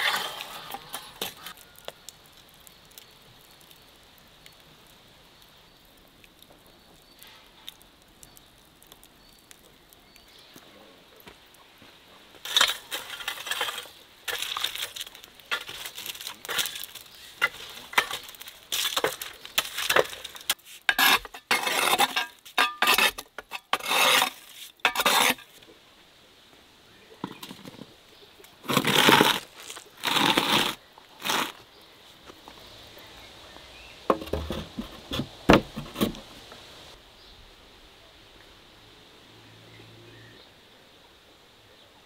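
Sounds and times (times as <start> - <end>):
metal rake scraping clay floor: 0.0 - 1.6, 12.4 - 25.6, 28.6 - 31.7, 34.1 - 36.3.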